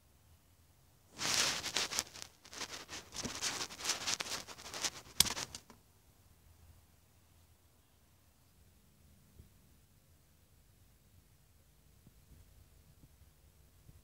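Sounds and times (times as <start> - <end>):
leaves and twigs rustling: 1.2 - 5.8.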